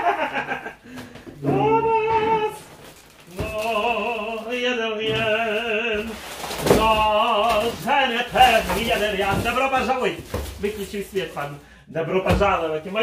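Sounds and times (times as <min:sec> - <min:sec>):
man singing operatic notes: 0:01.4 - 0:02.7, 0:03.3 - 0:09.2.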